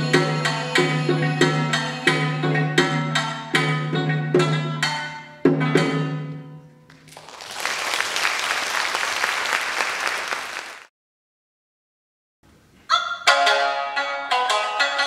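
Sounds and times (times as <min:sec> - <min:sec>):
audience applauding: 0:06.9 - 0:10.9.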